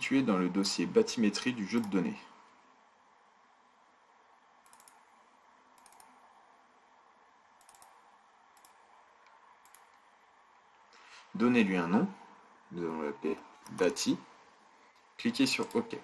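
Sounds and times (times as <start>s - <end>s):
computer mouse clicks: 4.6s - 5.1s, 5.8s - 6.2s, 7.6s - 10.0s.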